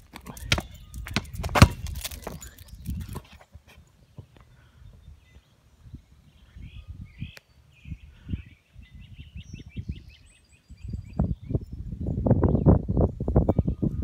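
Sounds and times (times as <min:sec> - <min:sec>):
bird chirping: 0:04.0 - 0:13.1.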